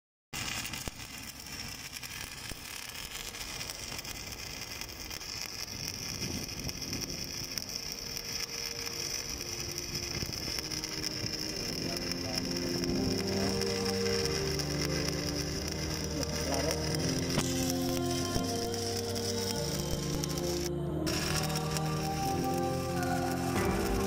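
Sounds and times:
welding arc crackling and hissing: 0:00.3 - 0:24.0
faint music: 0:06.8 - 0:24.0.

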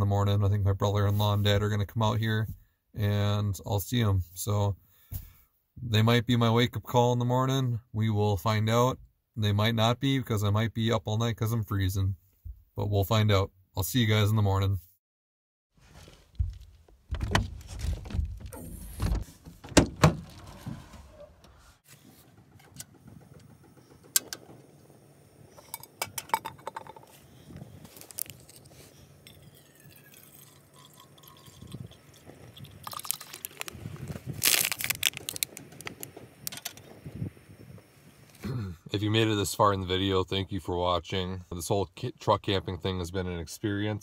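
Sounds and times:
knocks and rustles: 0:15.8 - 0:24.7
metal cup set on stove: 0:25.5 - 0:27.1.

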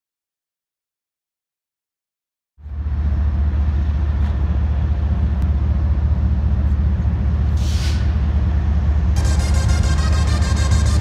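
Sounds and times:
diesel locomotive rumble: 0:02.6 - 0:11.0
short hiss: 0:07.6 - 0:08.2.

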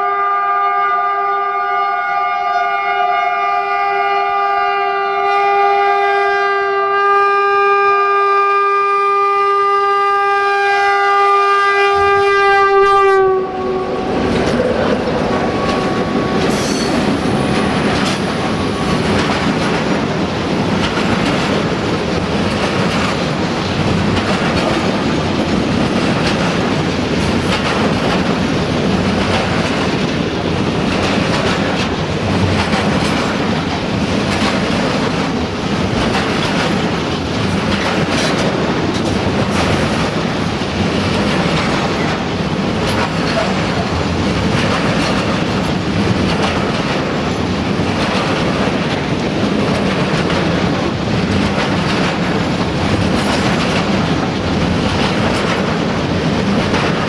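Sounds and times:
freight train rumbling: 0:00.0 - 0:57.0
wheels clacking over rail joints: 0:13.6 - 0:57.0.

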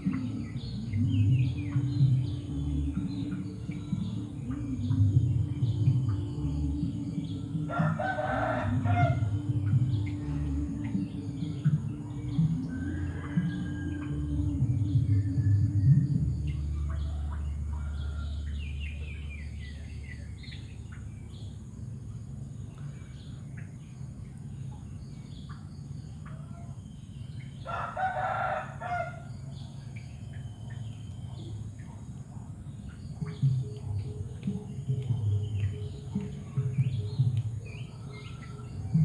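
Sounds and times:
low steady hum: 0:00.0 - 0:39.0
small birds chirping: 0:00.0 - 0:39.0
rooster crowing: 0:07.6 - 0:10.5, 0:11.3 - 0:14.7, 0:16.6 - 0:18.9, 0:27.6 - 0:29.9, 0:37.6 - 0:39.0.

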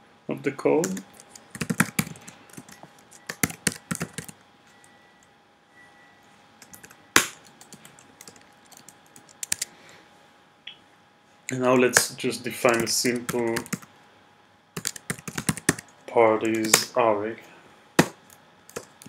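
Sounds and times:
typing on computer keyboard: 0:00.8 - 0:04.4, 0:06.6 - 0:09.7, 0:12.7 - 0:13.8, 0:14.8 - 0:16.8, 0:18.7 - 0:19.0.

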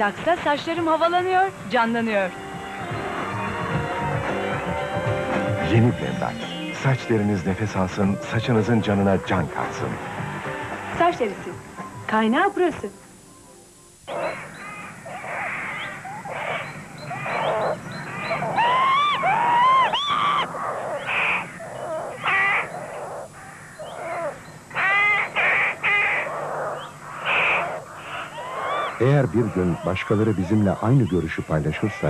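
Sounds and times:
crows cawing: 0:14.1 - 0:32.0.

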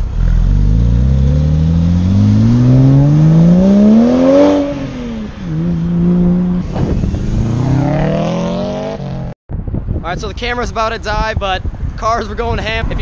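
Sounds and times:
car engine revving: 0:00.0 - 0:09.4
sports car accelerating hard: 0:00.2 - 0:09.3.

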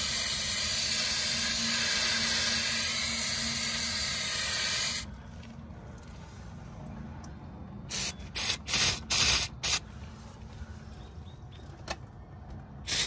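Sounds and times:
aerosol spray hissing bursts: 0:07.9 - 0:09.8.

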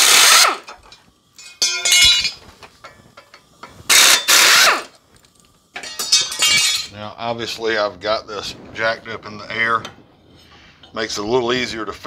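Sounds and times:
pneumatic air ratchet whine: 0:00.0 - 0:00.9, 0:03.8 - 0:05.0
metal rattle with ringing clink: 0:00.6 - 0:07.0.

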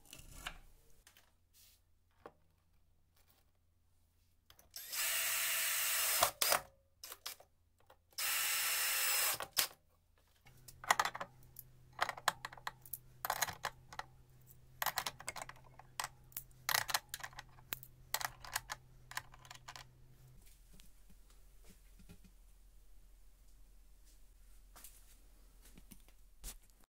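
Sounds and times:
cordless drill driving a screw: 0:04.7 - 0:07.3, 0:08.2 - 0:09.6.

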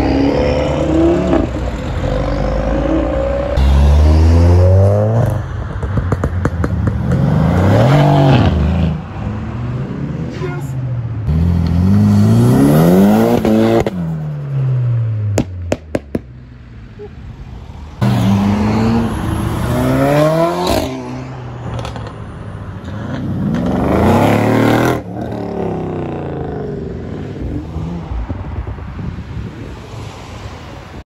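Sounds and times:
car engines revving hard: 0:00.0 - 0:10.3, 0:11.2 - 0:15.5, 0:17.9 - 0:22.2, 0:22.8 - 0:28.6.

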